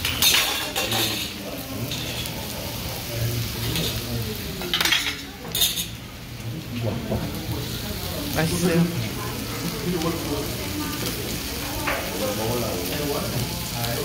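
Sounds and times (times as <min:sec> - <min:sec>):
metal bowls and utensils clattering: 0:00.0 - 0:02.4, 0:03.6 - 0:06.0.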